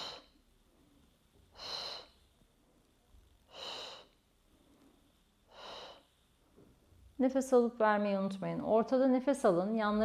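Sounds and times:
woman's sharp breathy exhalations: 1.5s - 2.2s.

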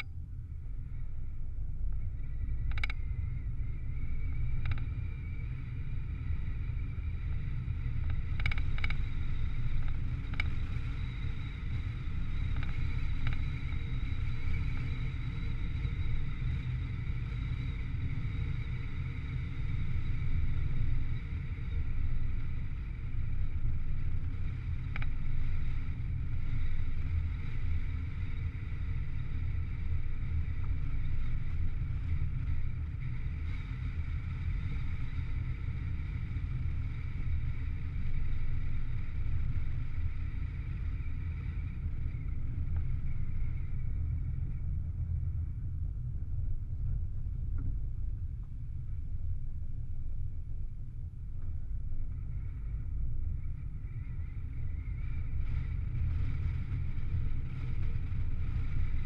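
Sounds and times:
road and wind rumble: 0.0s - 59.0s
faint clicks: 2.6s - 3.0s, 4.5s - 4.9s, 8.0s - 9.2s, 24.9s - 25.2s.

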